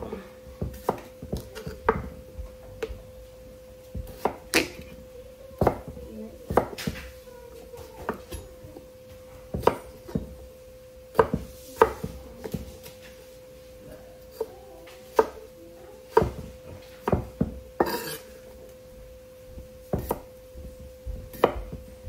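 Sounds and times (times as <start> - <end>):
steady hum: 0.0 - 22.0
knife chopping on cutting board: 0.6 - 2.2, 3.9 - 5.0, 5.6 - 7.1, 9.5 - 10.4, 11.1 - 12.9, 14.3 - 15.4, 16.1 - 18.3, 19.6 - 21.9.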